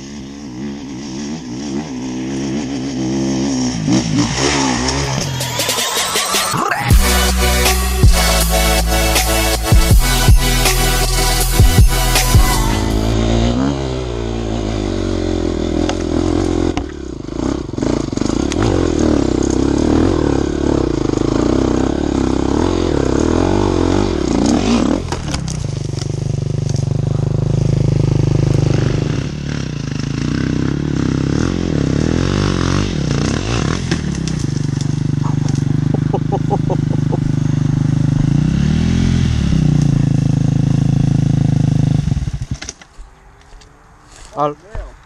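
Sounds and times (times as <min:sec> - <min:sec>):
motorcycle engine revving: 0:00.0 - 0:42.8.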